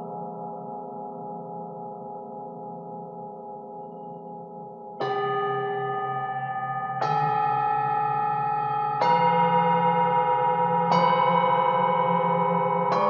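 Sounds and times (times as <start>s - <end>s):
tubular metal chimes ringing: 5.0s - 13.0s.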